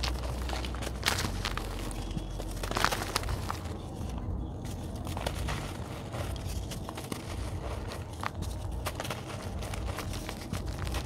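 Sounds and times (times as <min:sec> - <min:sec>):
dirt crumbling and crunching: 0:00.0 - 0:11.0.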